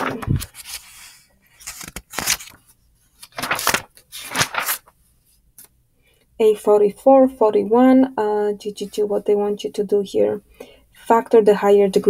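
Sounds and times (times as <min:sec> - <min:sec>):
paper pages turning: 0:00.0 - 0:05.0.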